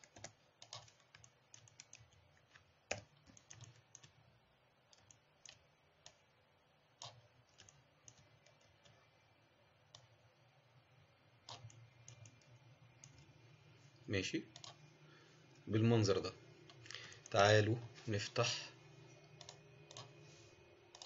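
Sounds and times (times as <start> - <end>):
faint low hum: 0.0 - 21.0
mouse and keyboard clicks: 7.0 - 8.6, 11.4 - 13.3.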